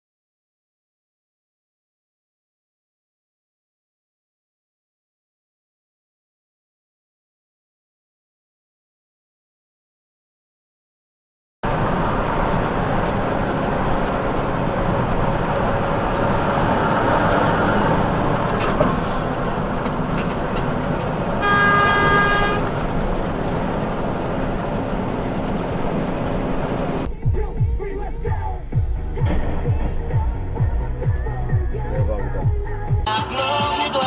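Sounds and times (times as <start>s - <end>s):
traffic noise: 11.6s - 34.0s
vehicle horn: 21.4s - 22.8s.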